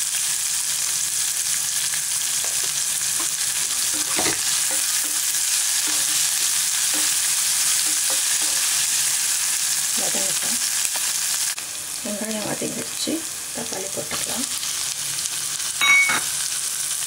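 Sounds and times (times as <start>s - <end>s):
vegetables sizzling in oil: 0.0s - 17.0s
spatula scraping pan: 2.3s - 9.6s.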